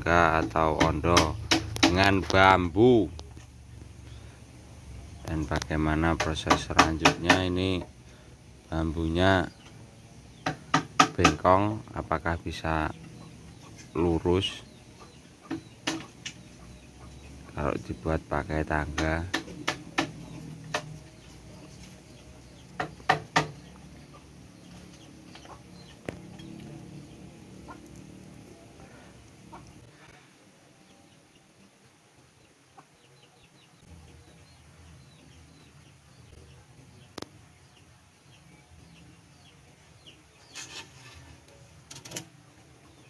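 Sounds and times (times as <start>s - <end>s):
hand tool knocking bamboo: 0.3s - 2.1s, 6.1s - 7.6s, 10.4s - 11.4s, 22.8s - 23.6s
bamboo pole scraping: 40.4s - 42.3s.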